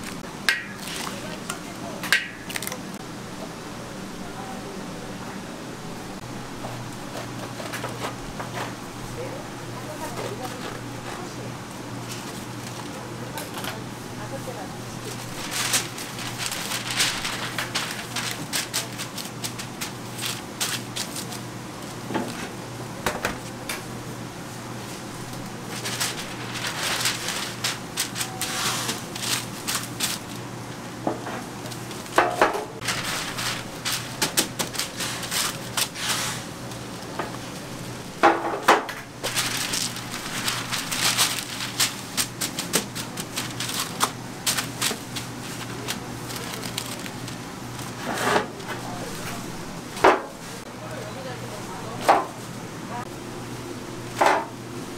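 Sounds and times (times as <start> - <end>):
baking paper crinkling: 0.0 - 3.0, 7.0 - 22.6, 24.7 - 38.2, 39.0 - 50.7.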